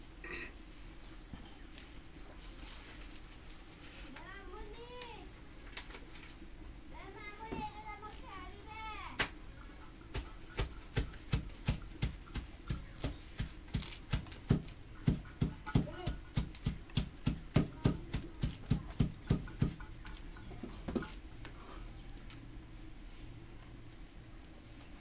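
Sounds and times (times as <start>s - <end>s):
leaves snapping off stalks: 10.6s - 15.8s.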